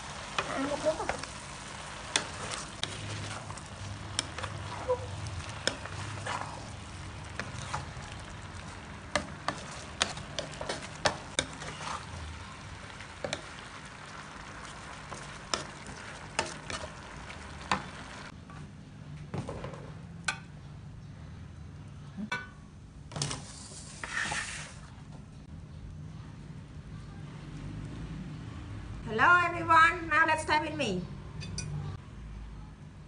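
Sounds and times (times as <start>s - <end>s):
stir-fry sizzling in a pan: 0.0s - 18.3s.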